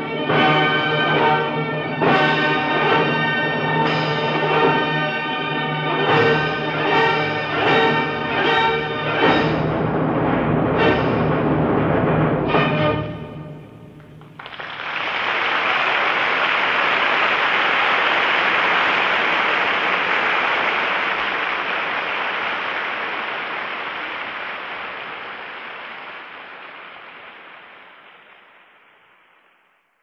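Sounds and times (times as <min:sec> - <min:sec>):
audience applauding: 0:14.0 - 0:29.2.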